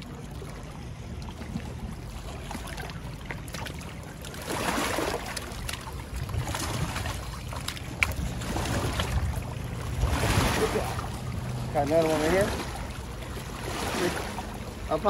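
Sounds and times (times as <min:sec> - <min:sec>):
fish splashing in water: 0:00.0 - 0:14.6
wind rumble on microphone: 0:04.4 - 0:15.0.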